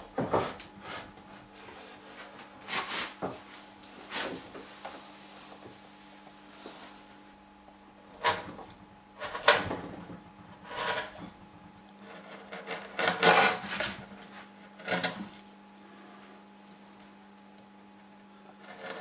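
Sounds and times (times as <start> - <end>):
faint steady hum: 0.0 - 19.0
chisel scraping wood: 8.2 - 9.9, 10.5 - 11.4, 12.0 - 15.5, 18.5 - 19.0.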